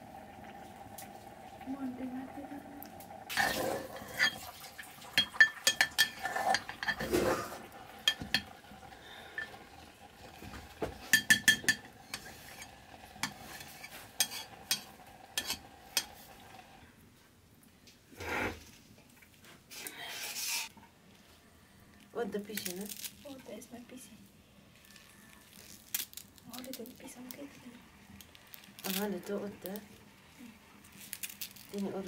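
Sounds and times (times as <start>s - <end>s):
faint steady hum: 0.0s - 32.0s
metal ladle scraping pot: 3.3s - 16.4s, 18.2s - 18.6s, 20.1s - 20.7s.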